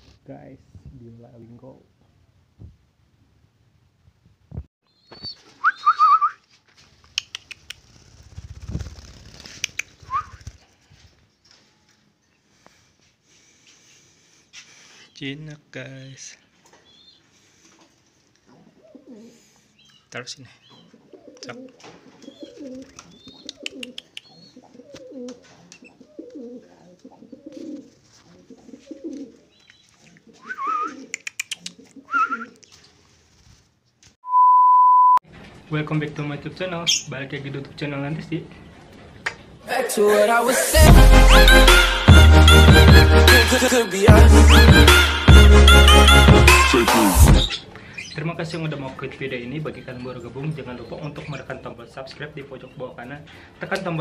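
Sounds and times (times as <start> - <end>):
small birds chirping: 4.8 - 6.1, 16.0 - 27.8, 28.4 - 33.0, 47.3 - 52.9
high bird calls: 4.9 - 6.3
doves cooing: 18.5 - 19.8, 20.7 - 32.7.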